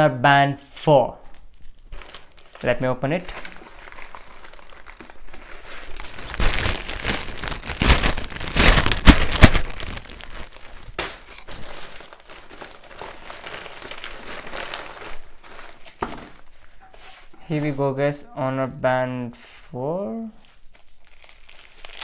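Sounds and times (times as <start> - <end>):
plastic rustling: 1.2 - 17.9, 20.4 - 22.0
plastic mailer bag tearing: 1.5 - 16.5, 21.0 - 22.0.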